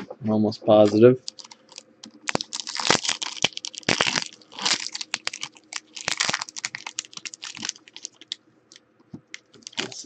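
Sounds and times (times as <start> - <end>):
foil wrapper crackling and tearing: 1.2 - 8.4, 9.6 - 10.0.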